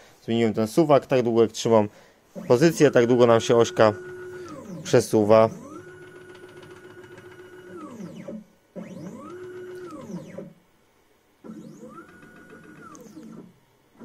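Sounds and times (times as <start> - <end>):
stepper motor whine: 2.4 - 10.6, 11.4 - 14.0.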